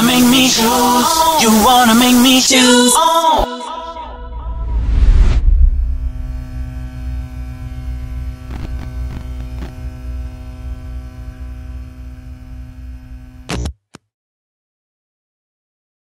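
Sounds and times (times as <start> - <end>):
neon sign buzzing hum: 5.5 - 13.7
faint electrical crackles: 6.3 - 11.3.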